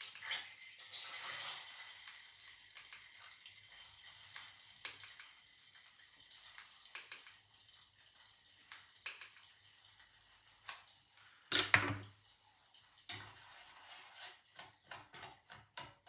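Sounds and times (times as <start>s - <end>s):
spoon and cookware clinking: 11.5s - 12.2s.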